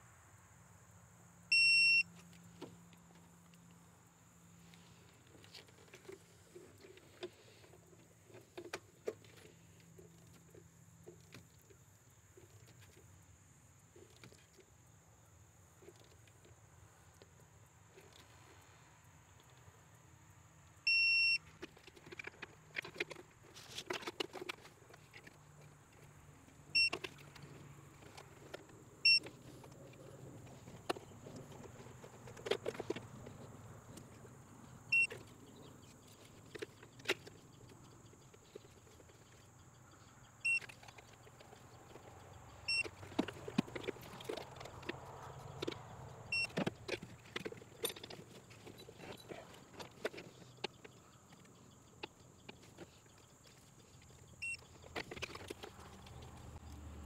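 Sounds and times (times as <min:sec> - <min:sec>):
digital torque wrench beeping: 0:01.5 - 0:02.1, 0:20.9 - 0:21.4, 0:26.7 - 0:27.0, 0:29.0 - 0:29.2, 0:34.9 - 0:35.1, 0:40.4 - 0:40.7, 0:42.7 - 0:43.0, 0:46.3 - 0:46.6, 0:54.4 - 0:54.7.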